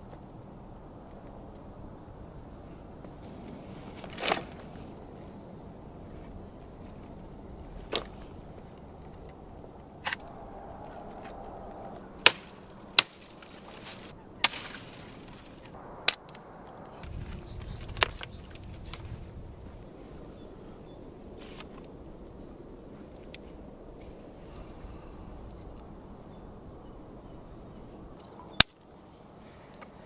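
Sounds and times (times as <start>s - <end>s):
rustle of brittle branches: 0.0s - 30.0s
dry sticks snapping: 4.0s - 4.7s, 8.8s - 19.1s, 28.6s - 30.0s.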